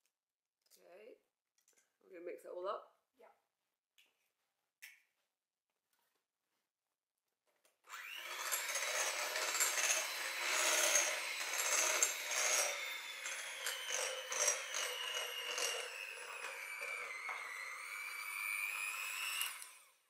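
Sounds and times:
electric hand mixer running: 7.9s - 20.0s.

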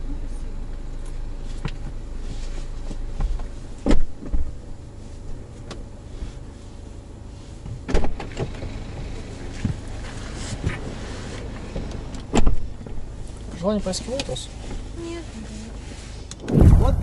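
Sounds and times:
car low hum: 0.0s - 17.0s
car door shutting: 3.2s - 4.5s, 7.7s - 8.9s, 11.7s - 13.0s.

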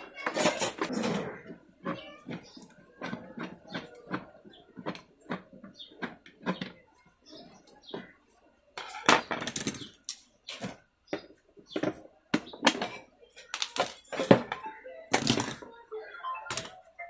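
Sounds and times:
hard plastic clattering: 8.8s - 15.7s.

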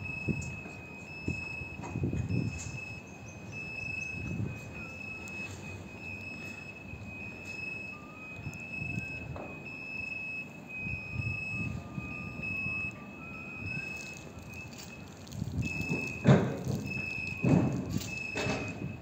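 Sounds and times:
electronic warning alarm tone: 0.0s - 19.0s
gusty low rumble: 13.5s - 19.0s.

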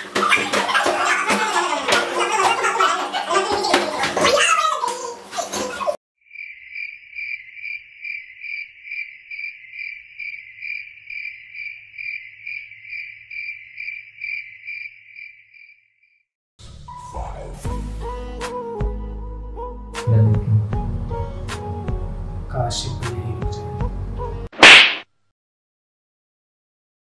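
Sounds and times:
cricket chirping: 6.2s - 16.2s
music: 16.6s - 24.5s.

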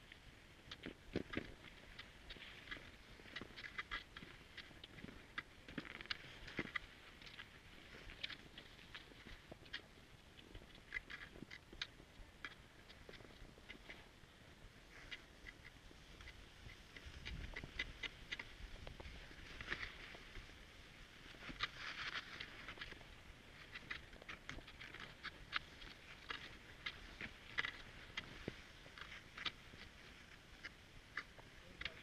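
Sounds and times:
skis and poles clicking on snow: 0.0s - 32.0s
skis swishing: 1.6s - 9.9s, 14.8s - 32.0s.

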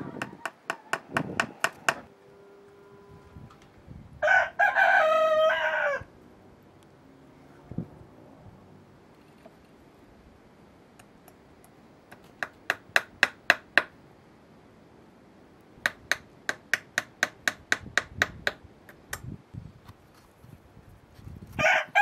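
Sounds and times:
hammer striking nails into wood: 0.2s - 2.1s, 12.1s - 14.0s, 15.8s - 18.6s.

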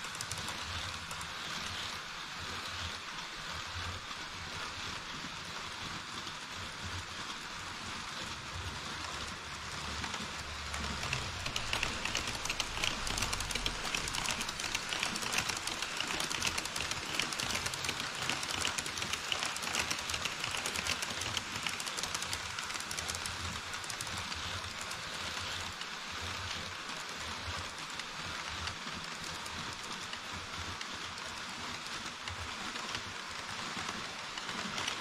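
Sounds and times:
model train wheels clattering: 0.0s - 35.0s.

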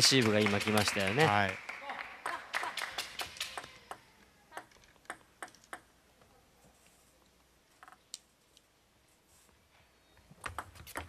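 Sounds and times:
crowd handclaps: 0.0s - 3.8s.

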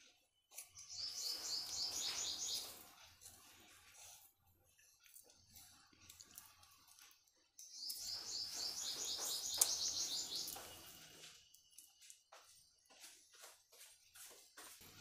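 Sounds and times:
small bird chirping: 0.1s - 3.5s, 7.6s - 12.6s.

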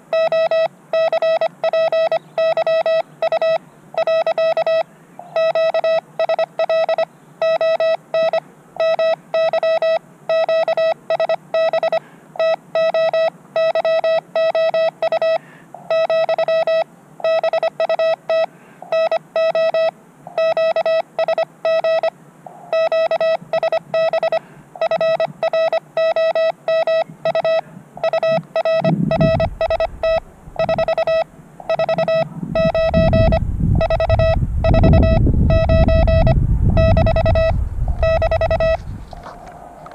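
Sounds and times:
morse code beeps: 0.0s - 22.1s, 22.7s - 39.9s
low rumble: 28.8s - 39.9s.

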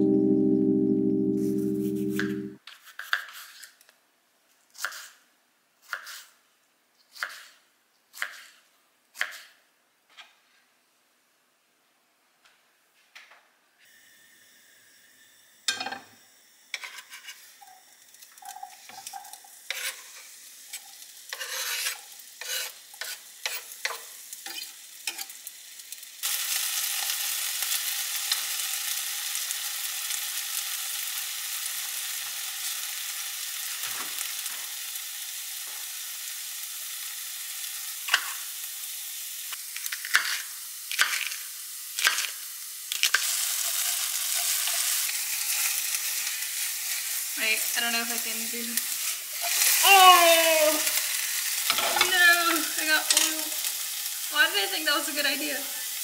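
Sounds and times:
potatoes sizzling in oil: 13.8s - 56.0s.

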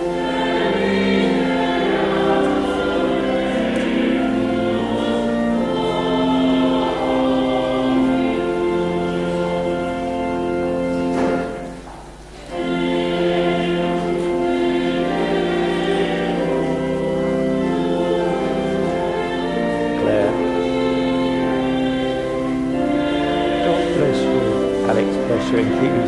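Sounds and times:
choir singing sacred music: 0.0s - 26.0s.

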